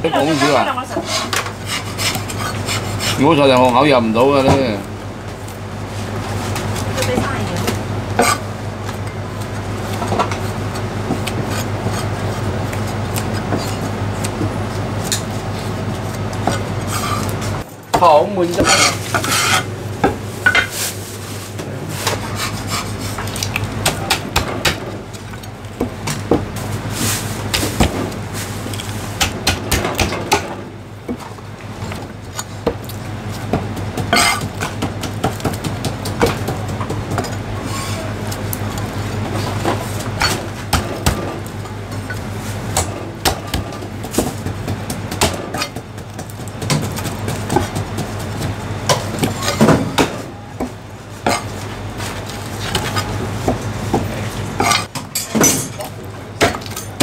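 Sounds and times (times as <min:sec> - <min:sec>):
cleaver chopping on wooden block: 0:42.8 - 0:45.7.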